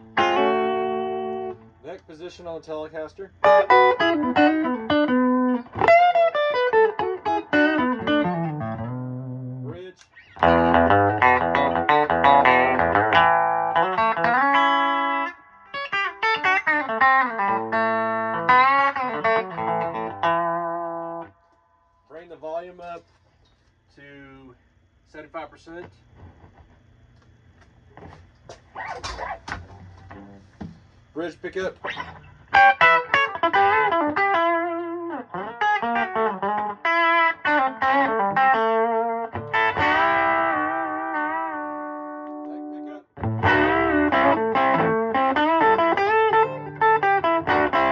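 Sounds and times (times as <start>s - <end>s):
electric guitar lick with bent notes: 0.0s - 1.8s, 3.4s - 21.4s, 31.8s - 47.9s.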